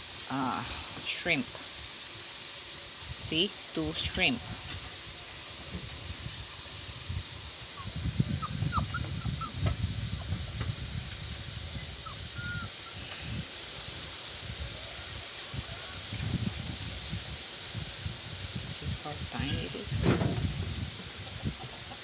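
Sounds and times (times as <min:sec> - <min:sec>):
steady high hiss: 0:00.0 - 0:22.0.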